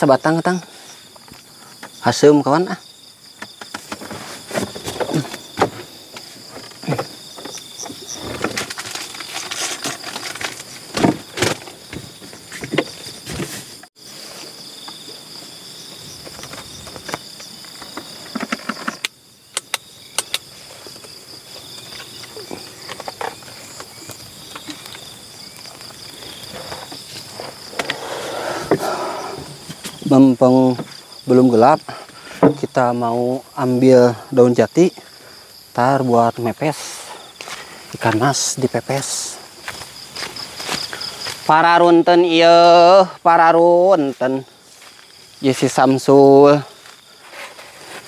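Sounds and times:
insects chirring: 0:00.0 - 0:48.0
handling knocks and clicks: 0:16.2 - 0:28.0.

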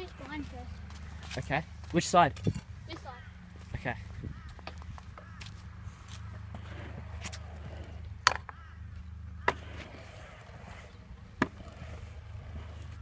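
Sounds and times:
scooter clacking on concrete: 0:06.2 - 0:10.0.

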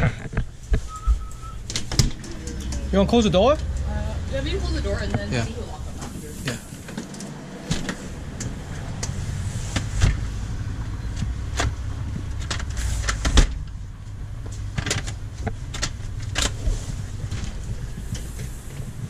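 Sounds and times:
low rumble: 0:00.0 - 0:19.0
front door pulled shut: 0:12.5 - 0:13.7.

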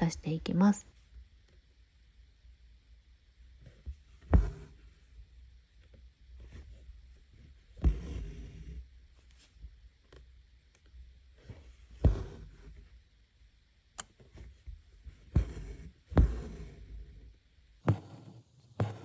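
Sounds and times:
needle pushing through fabric: 0:04.2 - 0:04.9, 0:07.7 - 0:08.8, 0:11.5 - 0:12.9, 0:15.2 - 0:17.2, 0:17.8 - 0:19.0.

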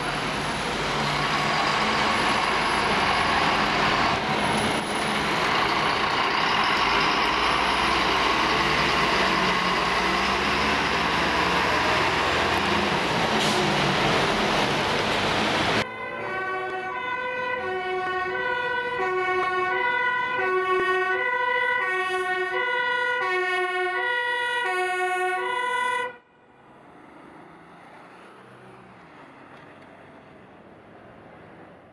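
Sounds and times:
loud traffic noise: 0:00.0 - 0:31.9
two-tone siren: 0:15.8 - 0:26.4.

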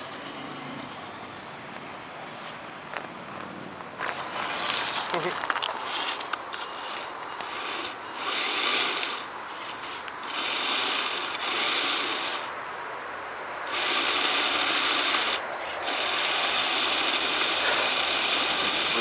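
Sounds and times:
electric drivetrain whirring and grinding: 0:02.9 - 0:12.7, 0:13.4 - 0:19.0
tires scrubbing against brush: 0:03.8 - 0:12.6, 0:13.5 - 0:19.0.

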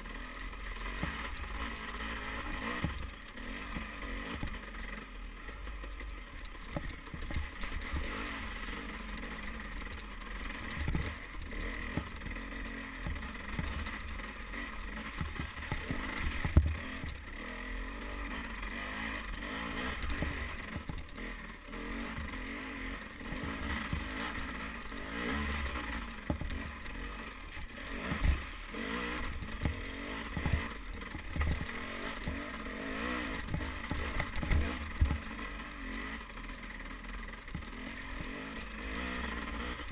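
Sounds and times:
dirt bike engine revving: 0:00.0 - 0:39.9
thumps from bumps: 0:10.7 - 0:12.4, 0:13.0 - 0:14.2, 0:15.0 - 0:17.2, 0:26.2 - 0:26.8, 0:28.0 - 0:32.5, 0:33.3 - 0:35.3.

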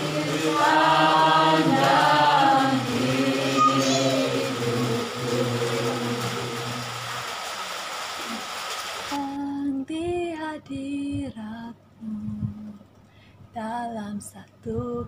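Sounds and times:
group singing worship song: 0:00.0 - 0:07.4.

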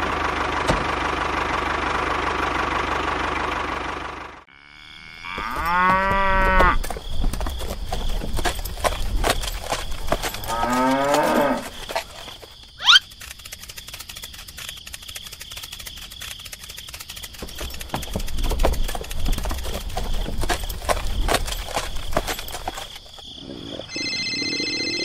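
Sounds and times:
cow mooing: 0:04.5 - 0:06.8, 0:10.4 - 0:11.8
sharp rising squeak: 0:12.8 - 0:13.1.

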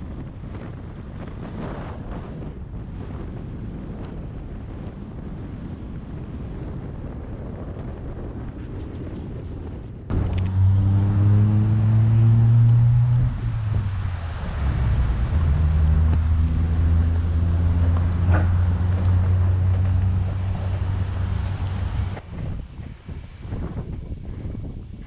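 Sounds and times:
wind buffeting microphone: 0:00.0 - 0:25.0
diesel truck engine pulling: 0:10.1 - 0:22.3.

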